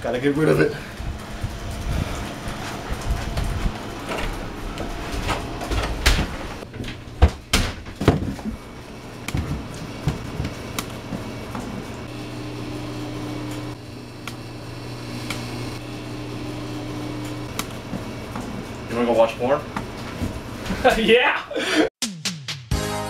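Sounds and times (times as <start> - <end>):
low electrical hum: 0.0 - 21.3
household knocks and clatter: 2.7 - 8.6, 9.2 - 10.6.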